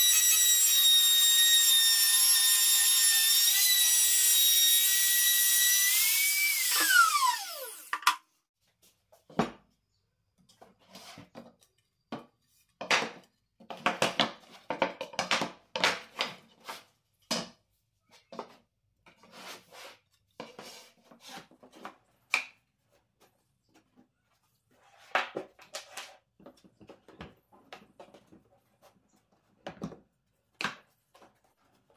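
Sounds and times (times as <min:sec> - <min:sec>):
router whining and spinning down: 0:00.0 - 0:08.2
wooden strips knocking and clacking: 0:11.4 - 0:16.4.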